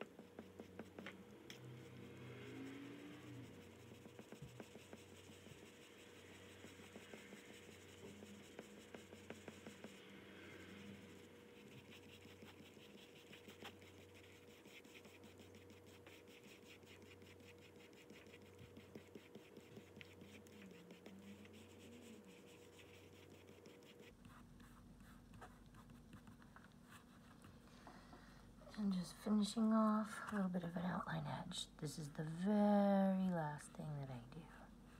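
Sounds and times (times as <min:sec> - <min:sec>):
pastel scratching on paper: 0:00.0 - 0:01.2, 0:01.8 - 0:27.5
fingertips rubbing paper: 0:03.0 - 0:10.0, 0:10.8 - 0:27.5.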